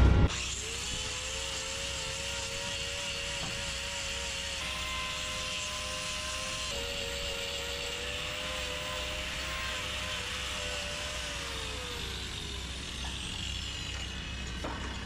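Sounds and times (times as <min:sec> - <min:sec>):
engine-like drone: 0:00.0 - 0:01.3
angle grinder whining: 0:00.0 - 0:15.0.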